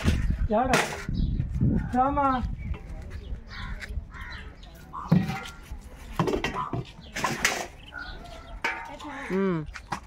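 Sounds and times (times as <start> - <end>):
metal pans and chains clinking: 6.2 - 9.3.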